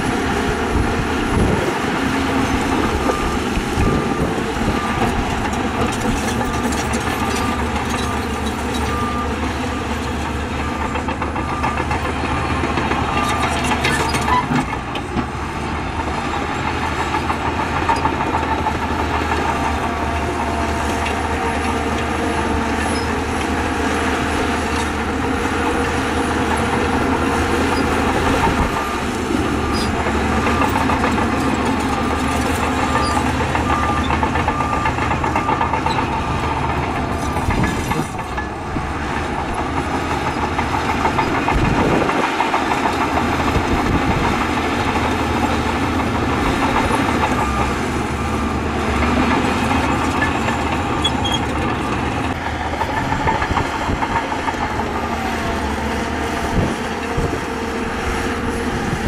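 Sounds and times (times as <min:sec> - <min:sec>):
heavy diesel machinery running: 0:00.0 - 0:59.0
reversing alarm beeping: 0:00.9 - 0:14.4, 0:18.5 - 0:38.6, 0:45.3 - 0:52.4.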